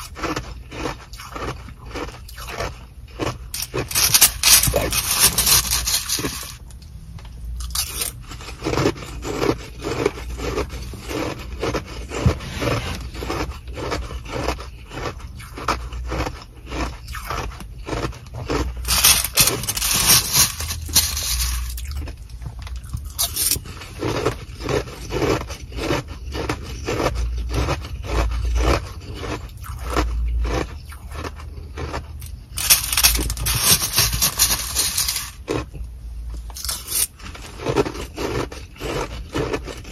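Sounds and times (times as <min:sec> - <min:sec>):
plastic spoon scraping ice: 0:00.0 - 0:06.7, 0:07.6 - 0:22.2, 0:22.8 - 0:35.7, 0:36.5 - 0:39.9
ice crackling: 0:03.2 - 0:06.6, 0:17.9 - 0:22.0, 0:31.8 - 0:35.6
plastic bag crinkling: 0:03.5 - 0:06.6, 0:18.5 - 0:22.1, 0:32.6 - 0:35.6.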